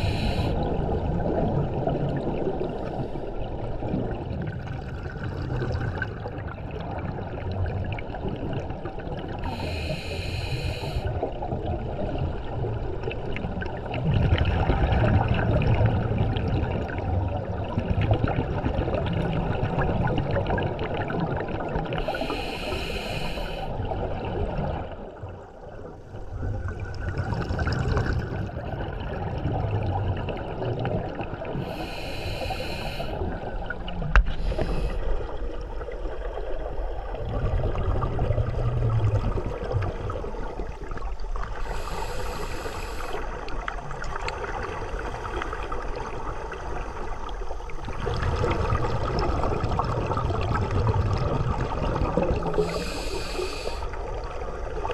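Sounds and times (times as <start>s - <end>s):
regulator breathing hiss: 0.0s - 0.6s, 9.4s - 11.1s, 22.0s - 23.7s, 31.6s - 33.3s, 34.2s - 35.2s, 41.6s - 43.4s, 52.6s - 54.0s
underwater bubbling of exhaled gas: 0.0s - 54.9s.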